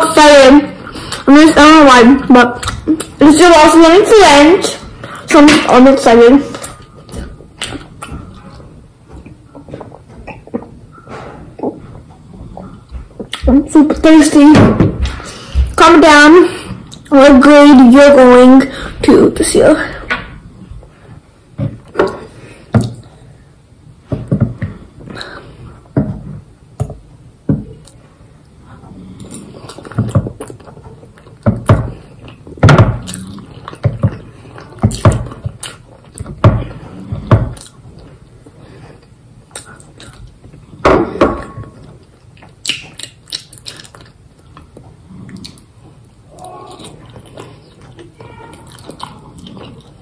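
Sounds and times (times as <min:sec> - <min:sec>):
chewing and slurping: 0:28.8 - 0:40.8, 0:41.8 - 0:50.0.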